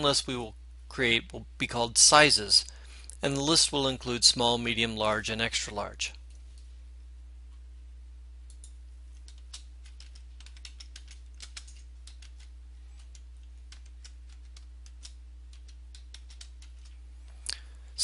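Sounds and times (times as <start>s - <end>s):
low electrical hum: 0.0s - 18.0s
keyboard keystrokes: 8.5s - 16.9s.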